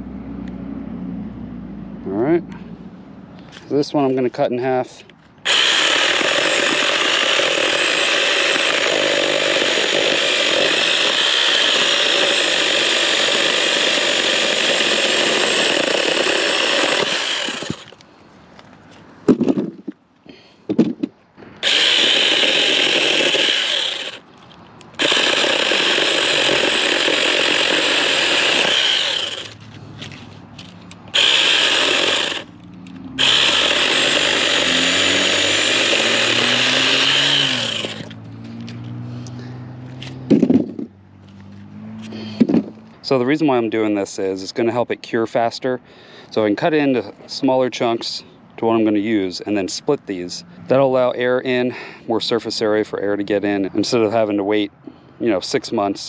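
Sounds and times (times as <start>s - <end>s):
mini chainsaw cutting logs: 3.9s - 18.1s, 19.3s - 43.8s.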